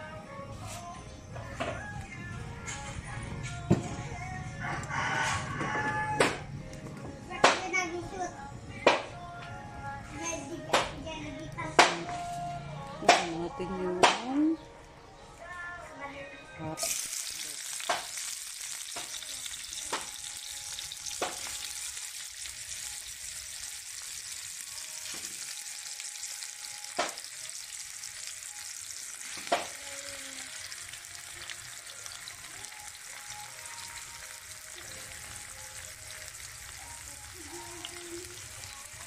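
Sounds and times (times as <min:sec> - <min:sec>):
food sizzling in hot oil: 0:16.8 - 0:39.0.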